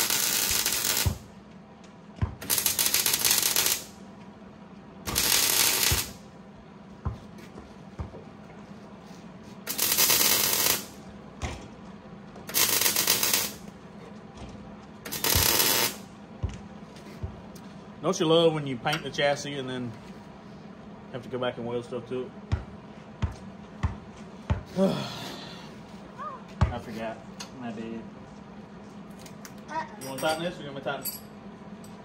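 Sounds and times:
arc welder crackling: 0.0s - 1.3s, 2.4s - 4.0s, 5.0s - 6.3s, 9.6s - 11.1s, 12.4s - 13.8s, 15.0s - 16.1s.

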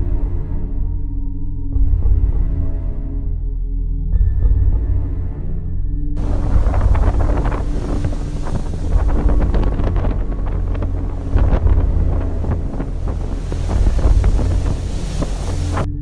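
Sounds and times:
storm waves rushing: 6.2s - 16.0s
wind buffeting microphone: 6.2s - 16.0s.

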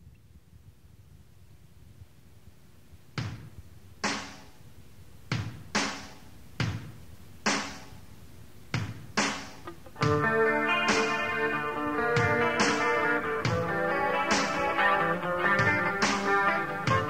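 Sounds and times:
slow drum hits: 8.8s - 11.3s.

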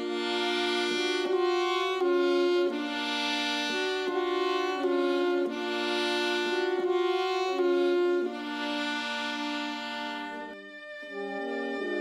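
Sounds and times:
slow instrumental music: 0.0s - 12.0s.

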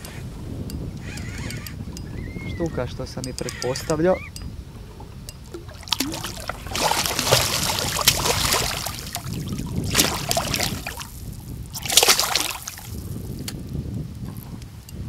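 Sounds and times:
fish splashing in water: 5.5s - 13.1s.

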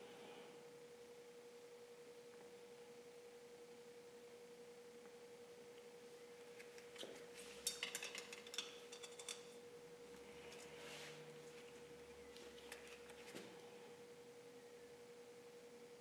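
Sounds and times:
faint humming tone: 0.0s - 16.0s
small tools clicking and clinking: 7.6s - 9.6s.

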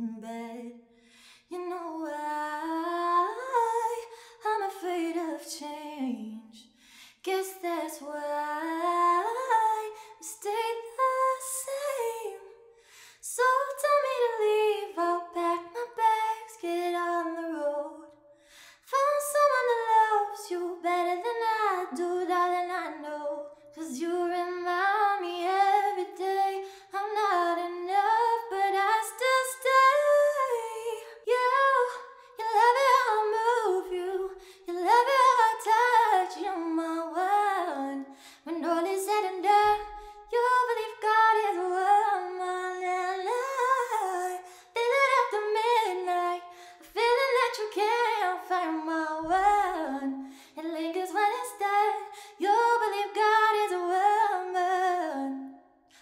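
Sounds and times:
woman singing a cappella: 0.0s - 56.0s
short breaths: 0.9s - 1.5s, 6.8s - 7.2s, 12.7s - 13.2s, 18.3s - 18.9s, 38.1s - 38.5s, 50.2s - 50.6s.

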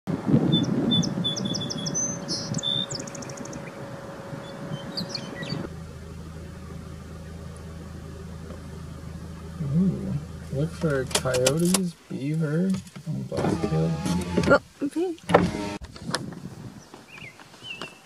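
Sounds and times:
low rumble: 0.2s - 11.7s
sparrow singing: 0.4s - 10.7s, 16.8s - 18.0s.

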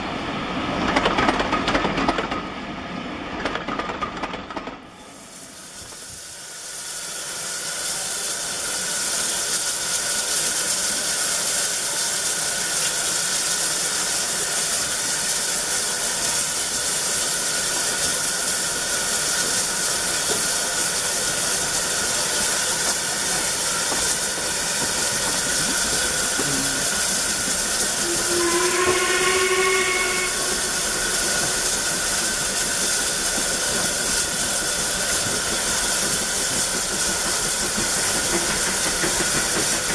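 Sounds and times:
steam hissing: 5.0s - 39.9s
locomotive whistle blast: 28.0s - 31.2s.

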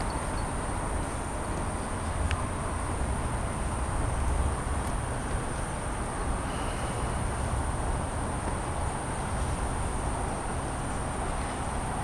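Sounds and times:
high-pitched insect trill: 0.0s - 2.1s
distant city traffic rumble: 0.0s - 12.0s.

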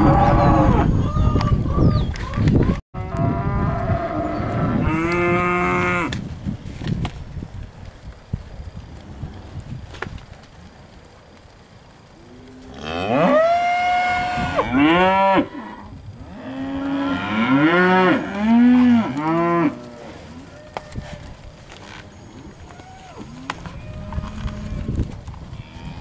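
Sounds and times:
steers mooing: 12.2s - 26.0s.

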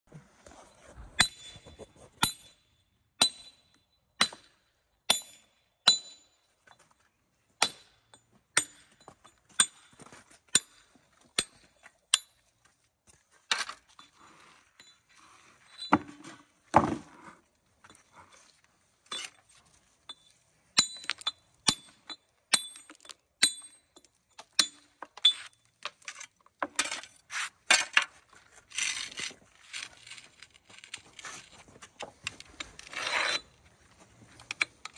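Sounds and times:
hammer clinking on stone: 3.2s - 4.5s, 5.1s - 6.4s, 20.1s - 25.6s
scraping on stone: 32.4s - 33.6s.

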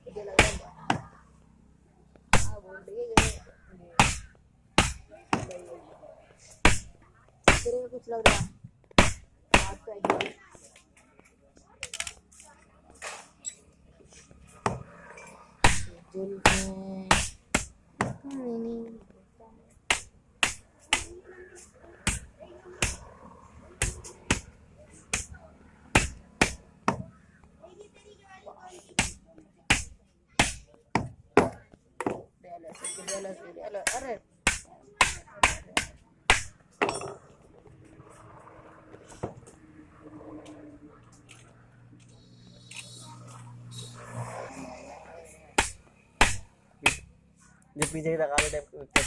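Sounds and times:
people talking: 18.2s - 19.5s.

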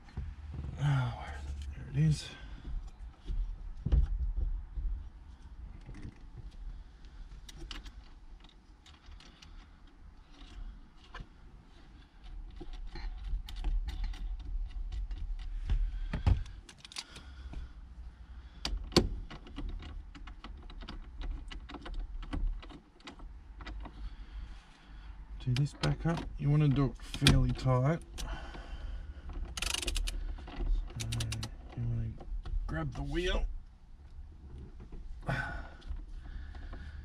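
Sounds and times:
steering wheel parts clicking: 5.8s - 17.8s, 18.4s - 24.5s, 25.4s - 33.4s.

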